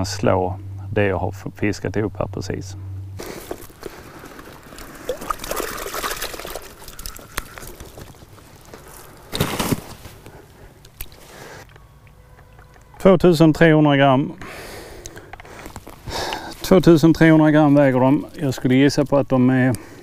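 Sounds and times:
water pouring and trickling: 4.2s - 8.8s.

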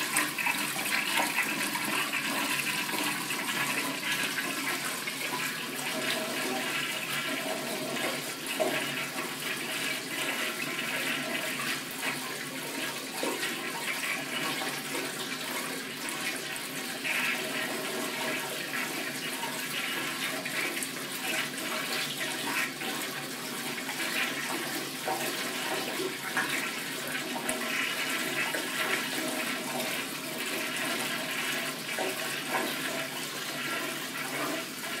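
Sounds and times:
toilet flushing continuously: 0.0s - 35.0s.

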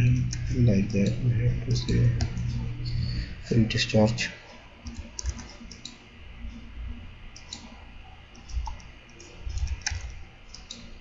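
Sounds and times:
computer mouse clicks: 4.8s - 6.0s, 7.3s - 11.0s.

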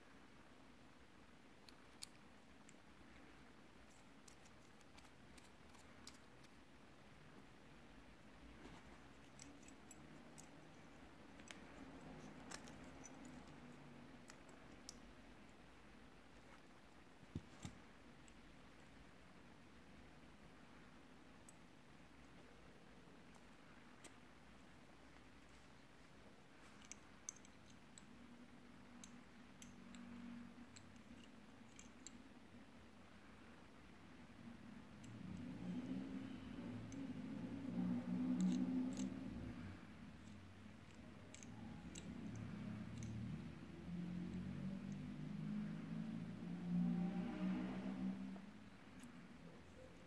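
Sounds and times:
small metallic clicks: 1.6s - 6.8s, 8.5s - 15.6s, 26.5s - 32.4s, 34.8s - 46.2s
small metal parts clicking: 3.8s - 6.6s, 9.1s - 15.1s, 26.6s - 28.2s, 28.9s - 32.2s, 38.2s - 39.4s.

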